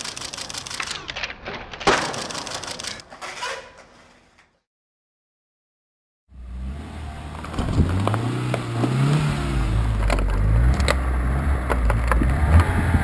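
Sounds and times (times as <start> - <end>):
sharp cracks and pops under wheel: 0.8 - 3.2, 7.3 - 9.2, 9.8 - 12.8
car engine running low: 6.3 - 13.0
gravel crunching under tyre: 7.0 - 13.0.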